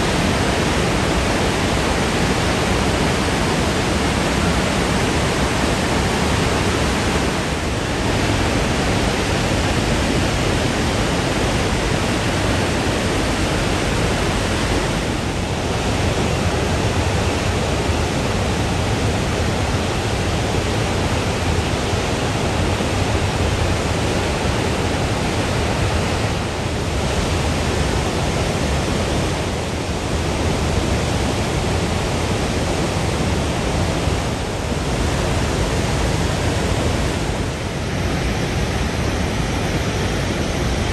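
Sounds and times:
waterfall rushing: 0:00.0 - 0:40.9.

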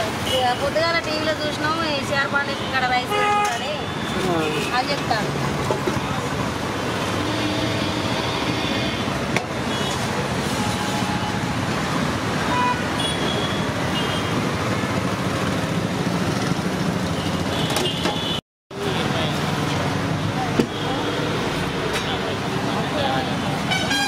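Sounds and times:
roadside traffic noise: 0:00.0 - 0:24.0.

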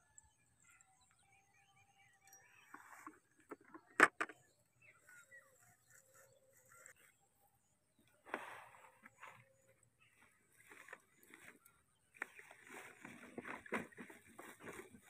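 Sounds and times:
faint bird calls: 0:04.8 - 0:14.8.

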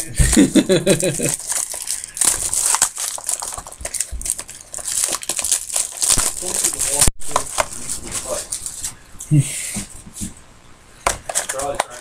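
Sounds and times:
card packaging crinkling and rustling: 0:00.3 - 0:08.9, 0:11.0 - 0:12.0.

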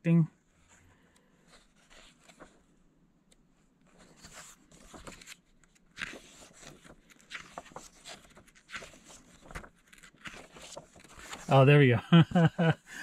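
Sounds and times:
comic book pages turning: 0:01.4 - 0:02.7, 0:03.8 - 0:11.8.

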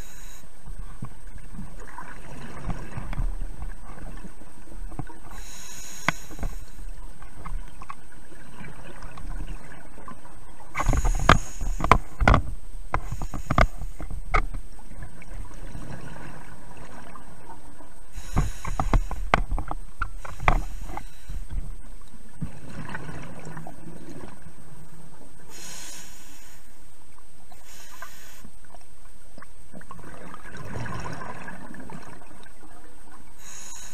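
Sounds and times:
steady hiss: 0:00.0 - 0:00.7, 0:05.2 - 0:07.0, 0:10.8 - 0:12.2, 0:12.9 - 0:14.1, 0:18.1 - 0:19.4, 0:20.0 - 0:21.6, 0:25.4 - 0:28.8, 0:33.4 - 0:33.9
regulator exhaust bubbles underwater: 0:28.6 - 0:33.4.

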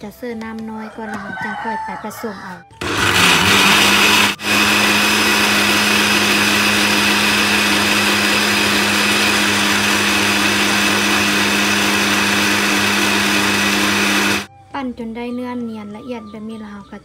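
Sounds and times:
blender grinding liquid: 0:02.8 - 0:14.5.

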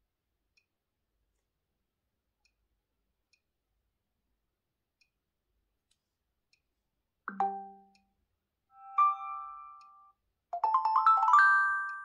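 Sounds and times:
plucked marimba-like notes: 0:07.3 - 0:07.9.

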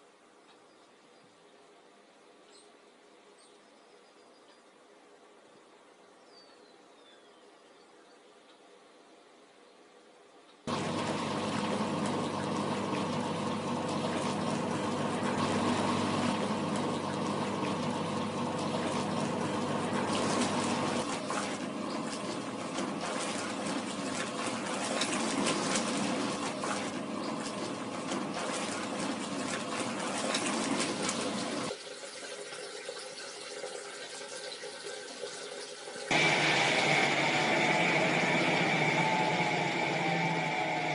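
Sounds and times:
washing machine motor humming: 0:10.7 - 0:31.8, 0:35.9 - 0:40.9
water sloshing and splashing: 0:10.7 - 0:36.2
water running from hose: 0:10.7 - 0:40.9.

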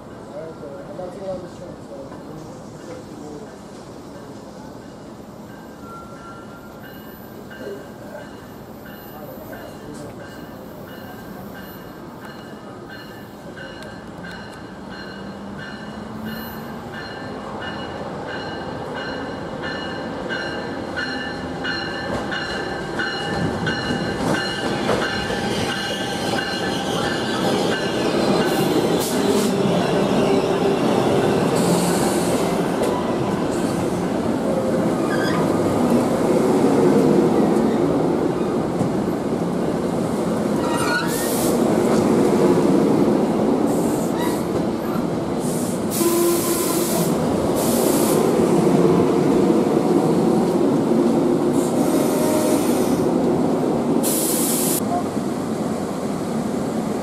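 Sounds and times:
train pulling into station: 0:00.0 - 0:57.0
squealing wheels and brakes: 0:35.0 - 0:35.6, 0:40.6 - 0:41.5.

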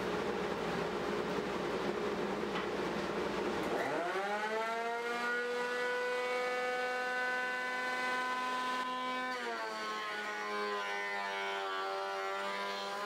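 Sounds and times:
jointer planer motor whining: 0:03.6 - 0:13.0.

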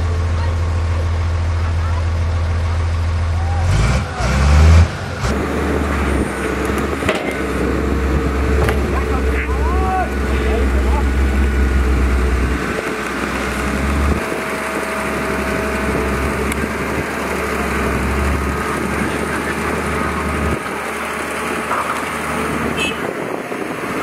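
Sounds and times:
heavy machinery diesel engines: 0:00.0 - 0:24.0.

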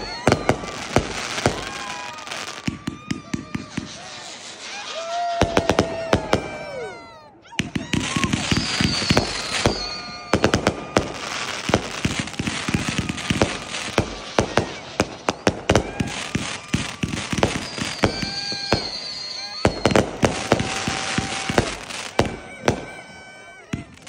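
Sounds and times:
fireworks bangs and launch thumps: 0:00.0 - 0:24.0
fireworks crackling: 0:00.0 - 0:24.0
fireworks whistling: 0:00.0 - 0:24.0.

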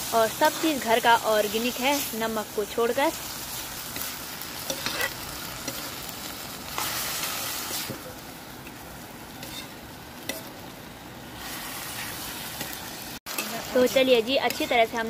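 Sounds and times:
vegetables sizzling in oil: 0:00.0 - 0:15.0
ladle scraping a pan: 0:04.7 - 0:05.8, 0:09.4 - 0:10.5.

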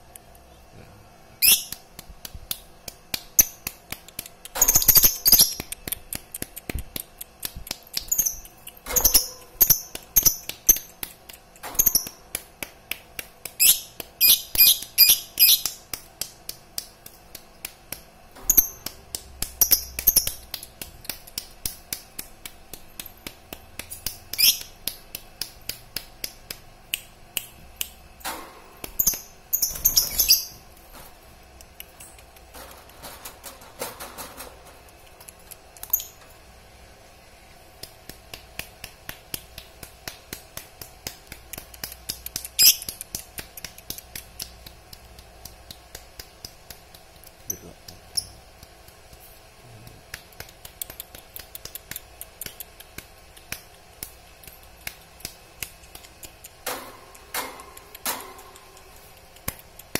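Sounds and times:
bird chirping: 0:29.0 - 0:30.6.

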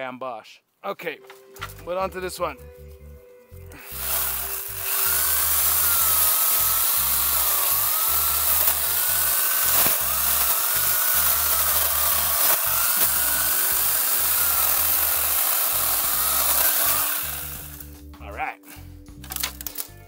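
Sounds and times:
electric chainsaw motor whine: 0:03.7 - 0:18.0
bamboo cracking: 0:03.7 - 0:18.2, 0:19.2 - 0:20.0.

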